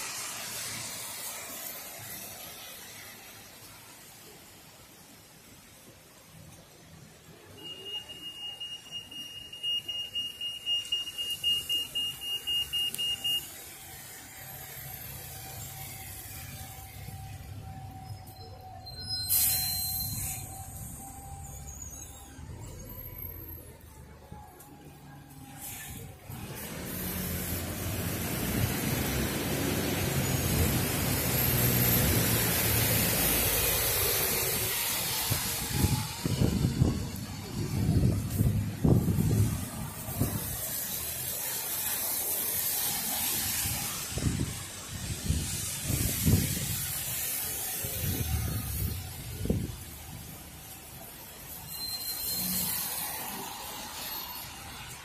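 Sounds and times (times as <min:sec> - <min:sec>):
bus passing: 0:00.0 - 0:07.6, 0:08.4 - 0:55.0
tyres hissing on wet road: 0:00.0 - 0:55.0
crossing signal high beeps: 0:07.6 - 0:13.6.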